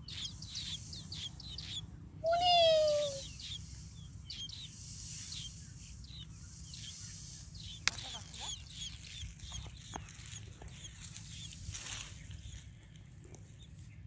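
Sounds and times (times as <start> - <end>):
chicks cheeping: 0.0 - 14.0
steady high hiss: 2.2 - 7.9.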